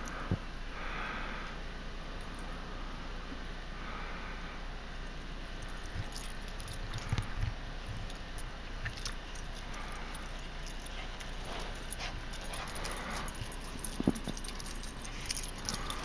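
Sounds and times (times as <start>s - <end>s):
metal dog tags jingling: 5.6s - 16.0s.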